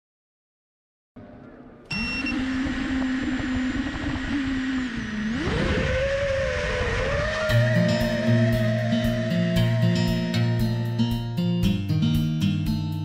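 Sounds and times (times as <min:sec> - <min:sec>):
quadcopter motors humming: 0:01.2 - 0:11.2.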